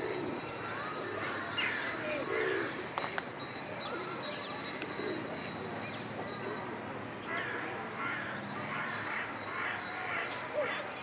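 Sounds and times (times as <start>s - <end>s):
pigeons cooing: 0.0s - 2.8s.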